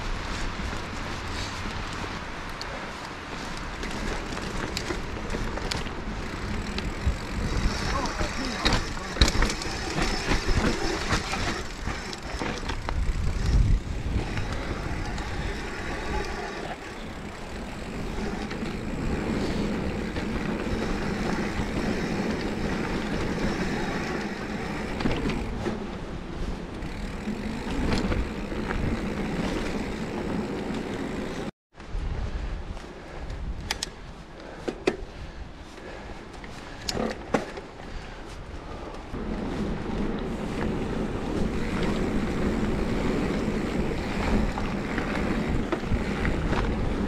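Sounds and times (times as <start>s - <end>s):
bike tyres rolling: 0.0s - 47.0s
bike knocks and rattles: 3.8s - 26.1s, 26.7s - 31.5s, 36.7s - 38.2s, 39.2s - 47.0s.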